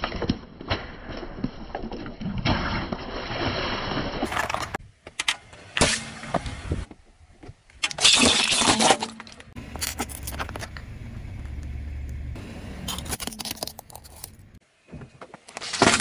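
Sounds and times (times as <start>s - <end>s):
rolling car rumble: 9.4s - 14.6s
tyre crushing plastic: 15.5s - 16.0s.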